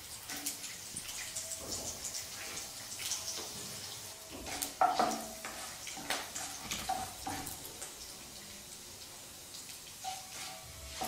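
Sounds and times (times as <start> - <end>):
lentils sizzling in hot fat: 0.0 - 11.0
spatula scraping a pan: 3.4 - 7.6, 10.0 - 11.0.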